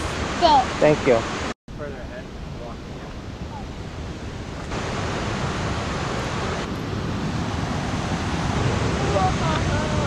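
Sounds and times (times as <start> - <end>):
creek rushing over rocks: 4.4 - 10.0.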